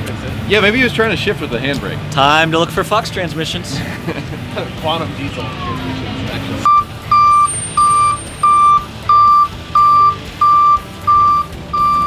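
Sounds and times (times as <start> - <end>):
truck engine rumble: 0.0 - 12.0
back-up alarm beeping: 6.6 - 12.0.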